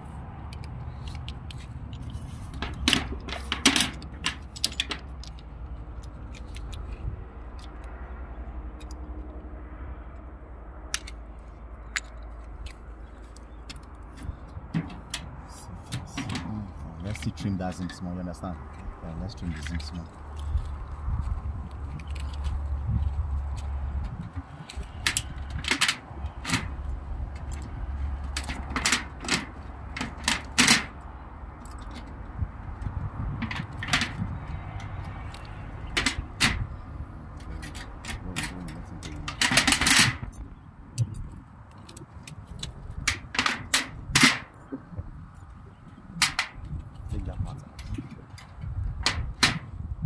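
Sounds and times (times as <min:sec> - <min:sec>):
crinkling clicks: 0:00.5 - 0:08.0.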